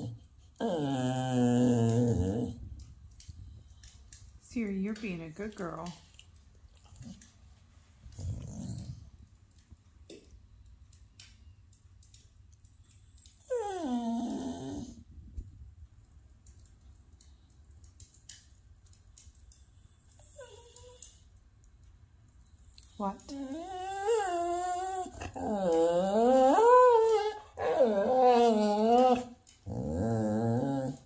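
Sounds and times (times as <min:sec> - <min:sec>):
dog whining and moaning: 0:00.0 - 0:02.8, 0:08.1 - 0:09.1, 0:12.9 - 0:15.1, 0:19.8 - 0:21.3, 0:22.8 - 0:31.0.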